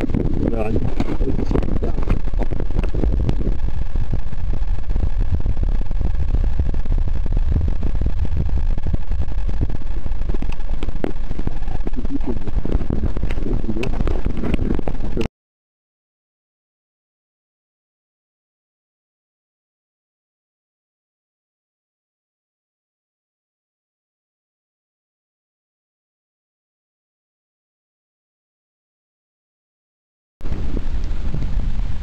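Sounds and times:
microphone handling crackles and knocks: 0.0 - 15.3
underwater rumble: 0.0 - 15.3, 30.4 - 32.0.

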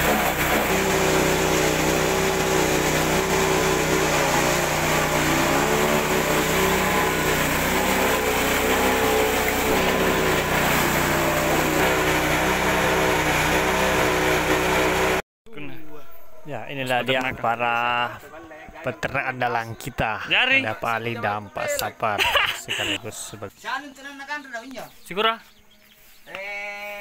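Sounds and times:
small engine running: 0.0 - 15.2.

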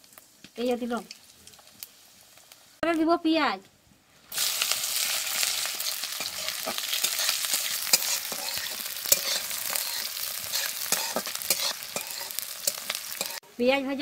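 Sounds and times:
onion sizzling in hot oil: 0.0 - 14.0
metal spatula scraping pan: 5.4 - 13.4.

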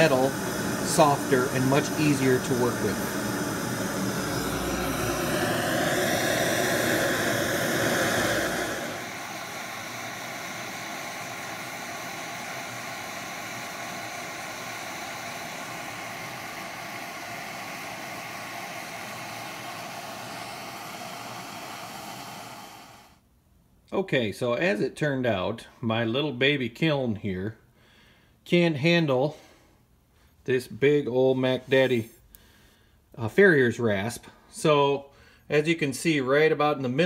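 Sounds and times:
gas torch hissing: 0.0 - 23.2.

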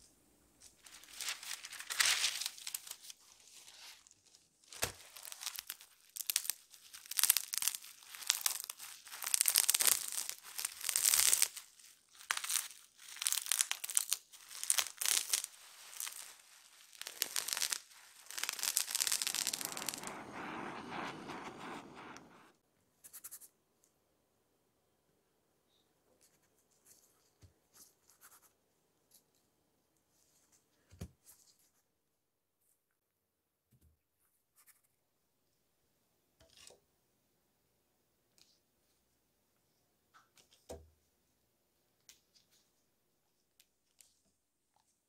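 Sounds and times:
bubble wrap crinkling: 0.7 - 22.5.

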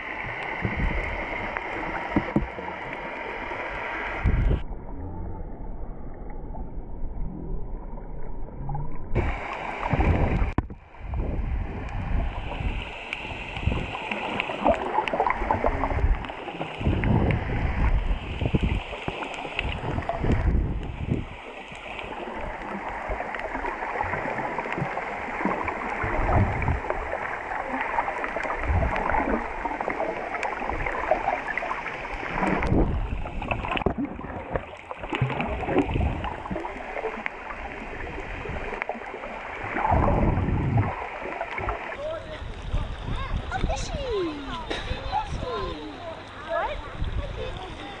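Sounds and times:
muffled water sloshing and gurgling: 0.0 - 48.0
low rumbling surges: 3.2 - 34.6.

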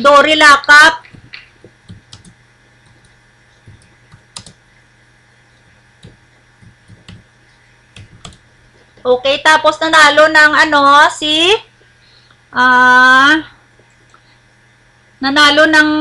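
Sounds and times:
faint low hum: 0.0 - 16.0
computer keyboard keystrokes: 1.0 - 4.6, 6.0 - 7.3, 8.0 - 8.4.

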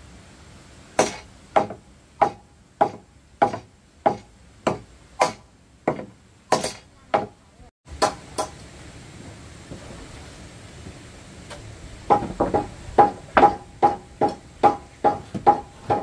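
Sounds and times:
hand tool knocking on wood: 1.0 - 7.3.

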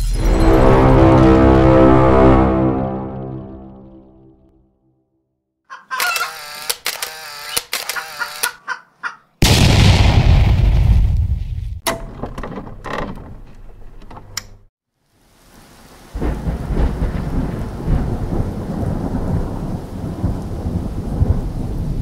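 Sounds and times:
rumbling thunder: 9.4 - 11.8, 16.1 - 22.0
steady rain: 15.0 - 22.0.

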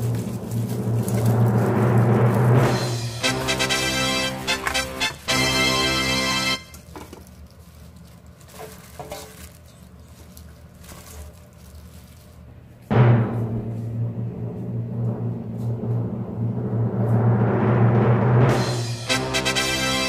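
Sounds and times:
fritters tossed in steel bowl: 0.0 - 2.9.

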